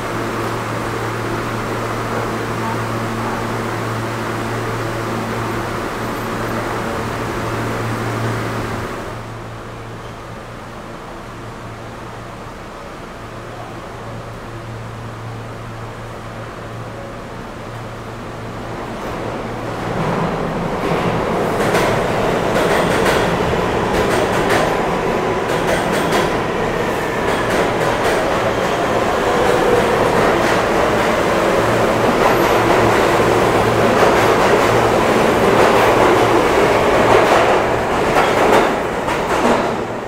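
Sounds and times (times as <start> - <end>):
subway train pulling out: 0.0 - 40.0
wheels clacking over rail joints: 19.8 - 40.0.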